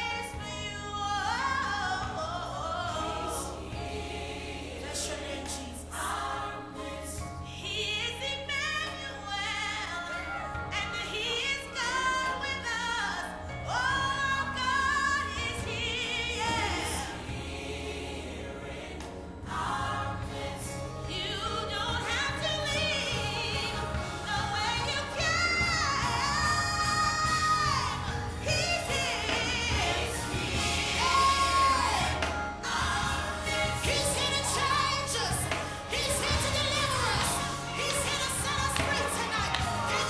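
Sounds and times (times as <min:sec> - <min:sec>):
gospel singing: 0:00.0 - 0:40.0
steady bass line: 0:14.0 - 0:40.0.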